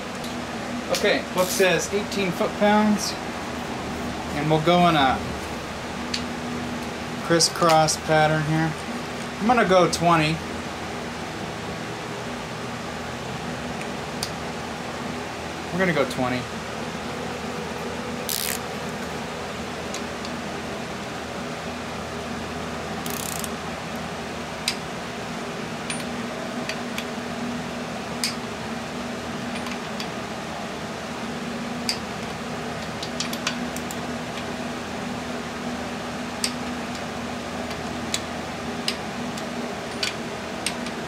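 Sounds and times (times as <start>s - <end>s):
steady fan hum: 0.0s - 41.0s
torque wrench clicks: 18.3s - 18.6s, 23.0s - 23.5s.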